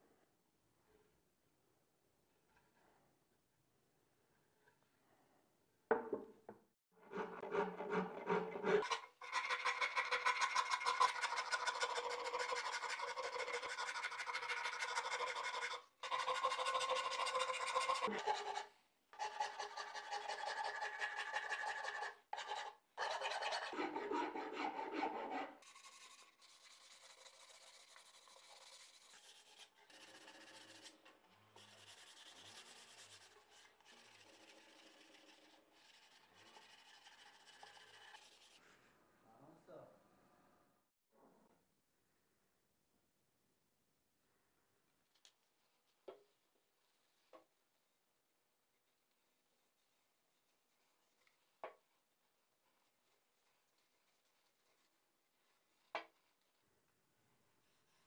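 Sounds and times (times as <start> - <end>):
metal file scraping wood: 7.0 - 38.6
sandpaper sanding wood: 23.9 - 30.8.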